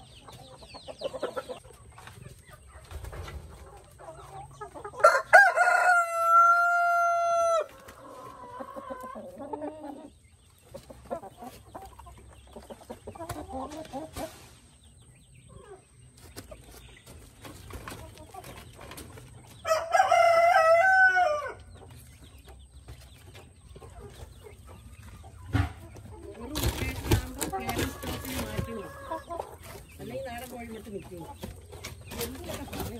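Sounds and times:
hens clucking: 0.0 - 32.9
rooster crowing: 5.0 - 7.7, 19.7 - 21.6.

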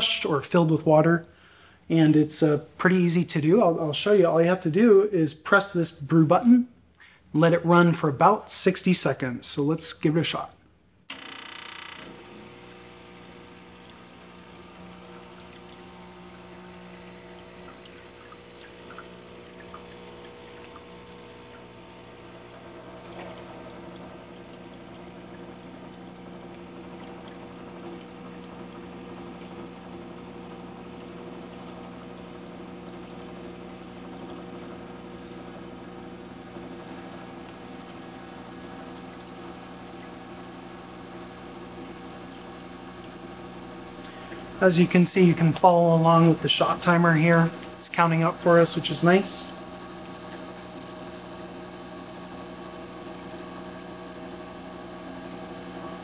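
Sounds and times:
espresso machine pump humming: 11.1 - 56.0
water pouring into drip tray: 13.8 - 33.9.

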